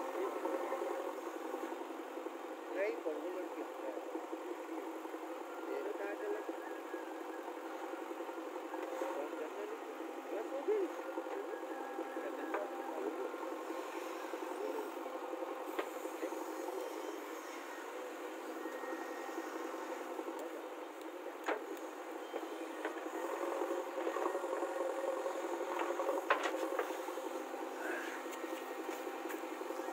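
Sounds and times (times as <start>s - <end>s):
diesel engine running: 0.0s - 29.9s.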